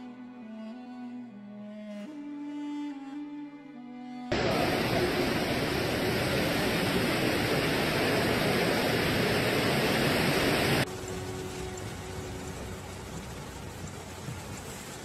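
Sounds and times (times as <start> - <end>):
strong storm wind: 4.3 - 10.9
heavy rain: 4.3 - 15.0.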